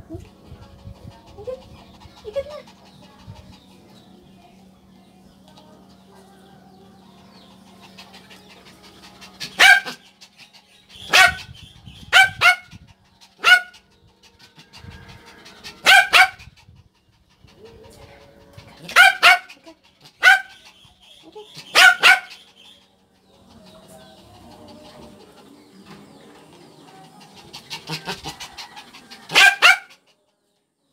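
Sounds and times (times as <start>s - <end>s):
small dog yapping: 9.4s - 10.0s, 11.1s - 11.5s, 13.4s - 13.7s, 15.8s - 16.4s, 18.8s - 19.6s, 20.2s - 20.6s, 21.5s - 22.4s, 29.2s - 30.0s.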